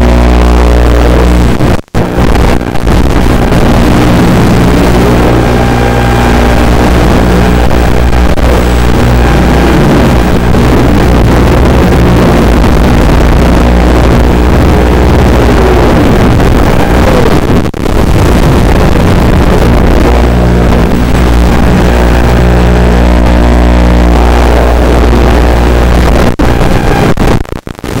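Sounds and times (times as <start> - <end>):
quadcopter propellers buzzing: 3.8 - 11.0.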